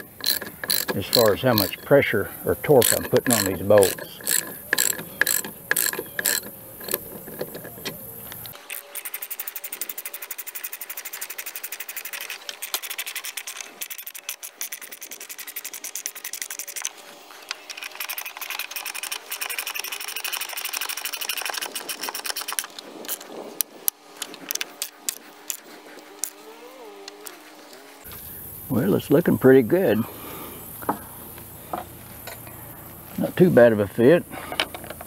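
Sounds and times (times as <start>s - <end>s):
ratchet wrench clicking: 0.0s - 16.9s, 17.5s - 25.6s.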